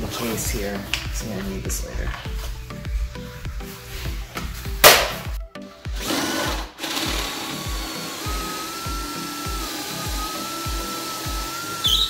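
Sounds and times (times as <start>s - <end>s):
background music with steady beat: 0.0s - 12.0s
cordless drill boring into wood: 6.0s - 12.0s.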